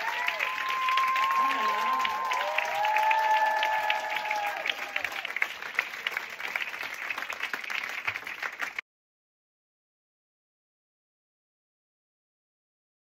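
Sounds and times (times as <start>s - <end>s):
voices cheering: 0.0s - 5.8s
audience applauding: 0.0s - 8.8s.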